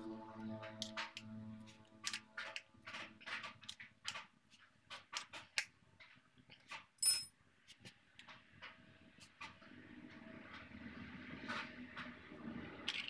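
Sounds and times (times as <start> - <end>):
sharp ringing metallic clink: 7.0 - 7.3.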